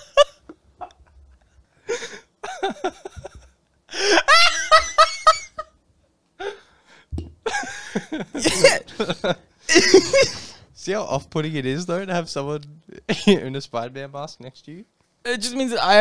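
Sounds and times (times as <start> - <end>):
laughter: 0.0 - 1.6, 2.4 - 5.8, 7.4 - 10.6.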